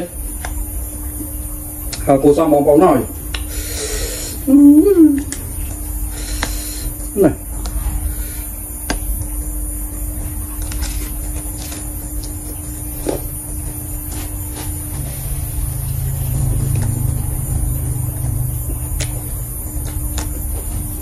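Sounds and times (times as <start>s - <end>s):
steady low rumble: 0.0s - 21.0s
chewing with small crunches: 10.1s - 17.5s, 18.2s - 21.0s.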